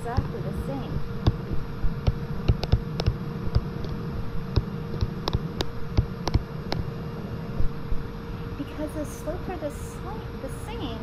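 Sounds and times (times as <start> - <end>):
steady hum: 0.0 - 11.0
stylus tapping on screen: 0.1 - 0.4, 1.2 - 6.9.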